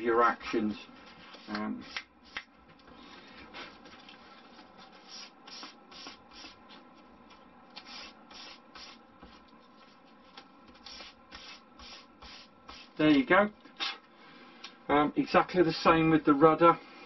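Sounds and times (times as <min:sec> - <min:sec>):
sandpaper rubbing wood: 0:07.8 - 0:09.0, 0:10.8 - 0:13.0.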